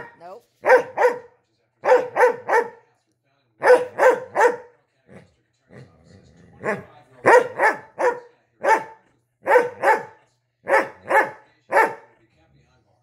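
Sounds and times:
dog barking: 0.0s - 2.8s, 3.6s - 4.8s, 6.6s - 12.2s.

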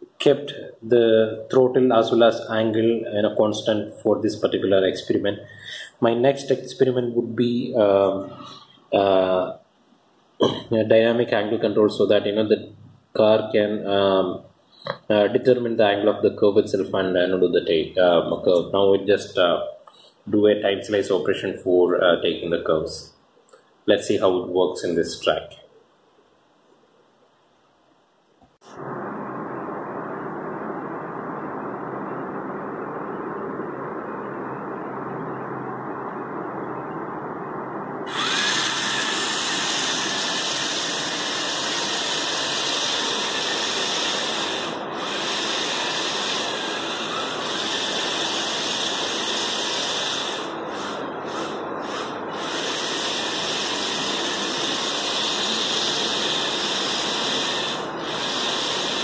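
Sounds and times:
small electric motors whirring: 38.1s - 59.0s.

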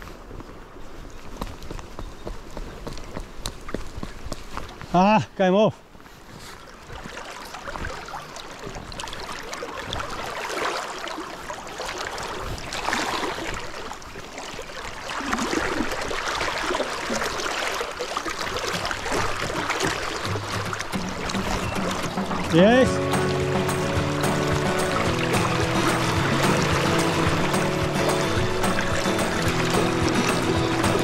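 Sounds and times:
river current rushing: 4.8s - 31.0s.

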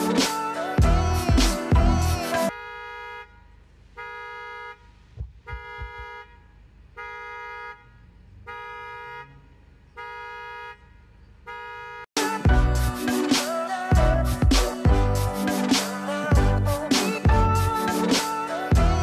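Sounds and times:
car alarm horn honking: 2.5s - 12.1s.

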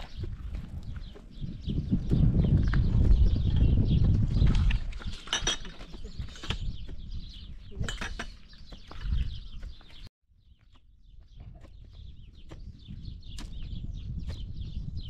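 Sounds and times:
small birds chirping: 0.0s - 15.0s
dishes and utensils clinking: 5.1s - 6.6s.

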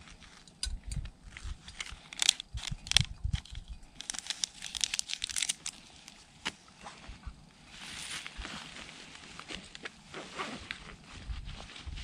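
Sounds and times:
wrapper crinkling and tearing: 1.7s - 6.2s.

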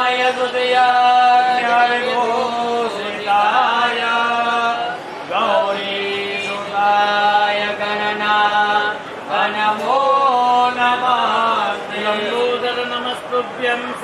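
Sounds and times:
person chanting a hymn: 0.0s - 14.0s.

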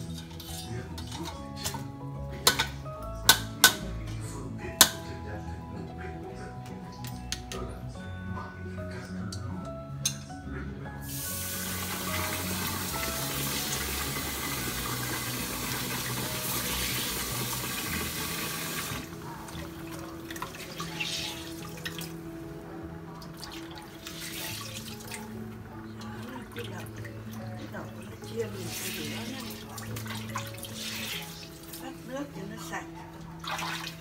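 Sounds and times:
background music: 0.0s - 34.0s
small splashes and clinks: 33.4s - 34.0s.

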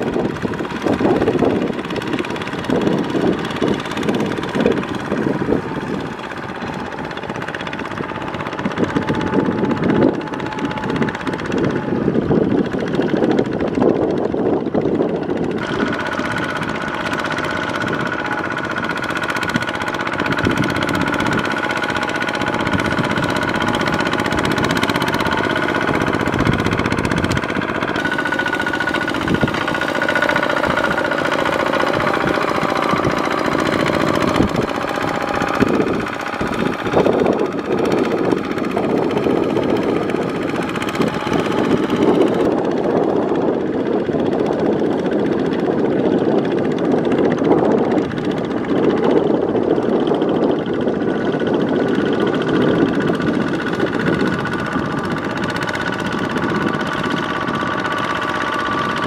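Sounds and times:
diesel engine running: 0.0s - 59.0s
wheels splashing through mud: 15.4s - 59.0s.

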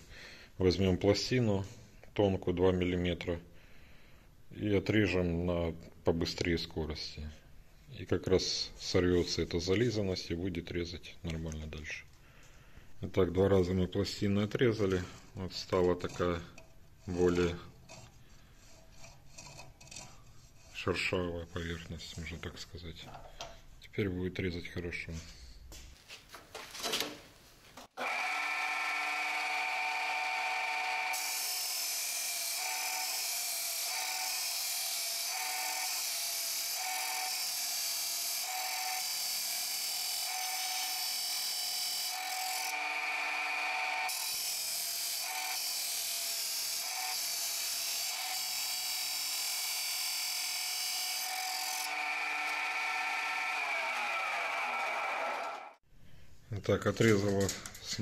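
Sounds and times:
saw grinding through steel: 14.9s - 22.6s, 28.0s - 54.6s
cut-off saw motor: 28.0s - 55.1s.

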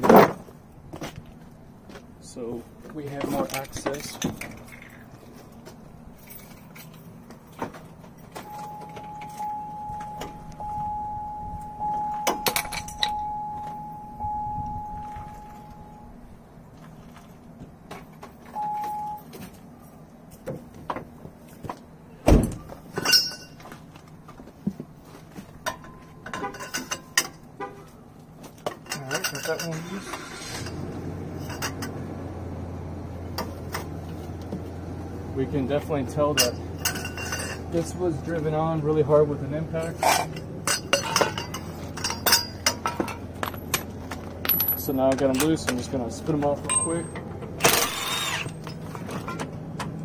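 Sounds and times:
steady high tone: 8.4s - 16.3s.

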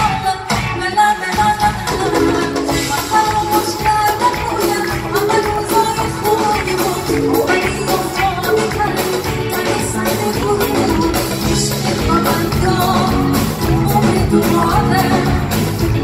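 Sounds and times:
live band playing: 0.0s - 16.0s
woman singing: 0.0s - 16.0s.

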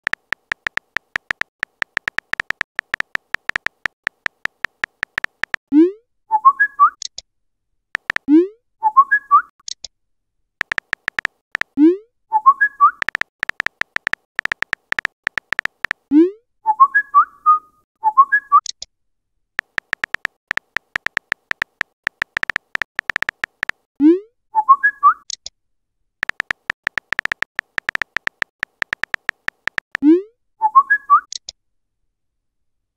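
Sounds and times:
phone keyboard typing clicks: 0.0s - 5.6s, 8.0s - 8.3s, 10.6s - 11.8s, 13.0s - 16.1s, 19.6s - 23.9s, 26.2s - 30.0s
messenger alert tones: 26.2s - 30.0s.

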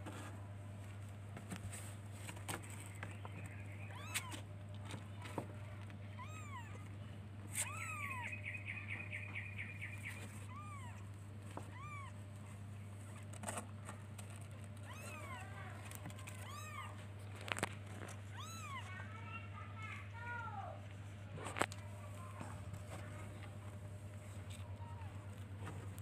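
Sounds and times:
steady low hum: 0.0s - 26.0s
kitten mewing: 6.1s - 8.4s, 10.2s - 12.2s, 14.7s - 17.0s, 18.2s - 18.9s.

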